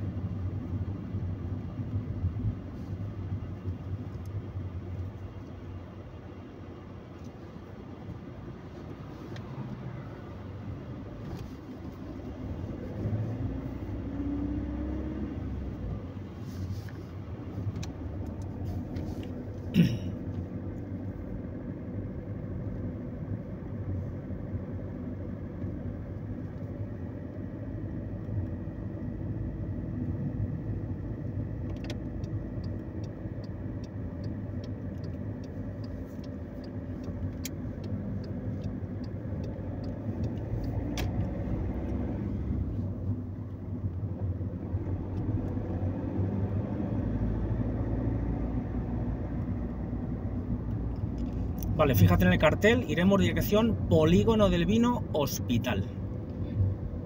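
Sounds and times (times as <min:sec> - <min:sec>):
car engine and tyre rumble: 0:00.0 - 0:57.0
turn signal ticking: 0:17.4 - 0:19.6, 0:24.8 - 0:57.0.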